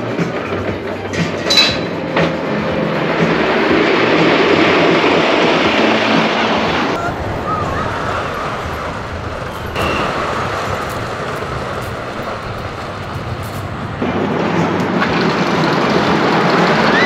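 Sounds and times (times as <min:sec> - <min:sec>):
roller coaster rumbling on track: 0:00.0 - 0:17.0.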